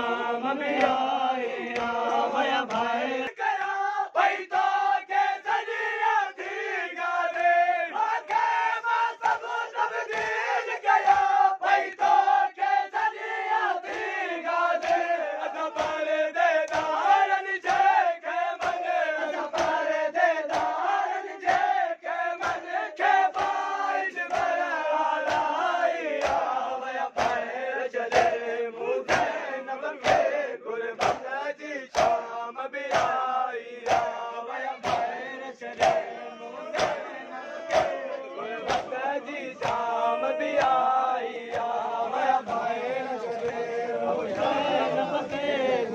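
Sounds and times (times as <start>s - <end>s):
men chanting in unison: 0.0s - 45.9s
hands beating chests: 36.7s - 39.0s.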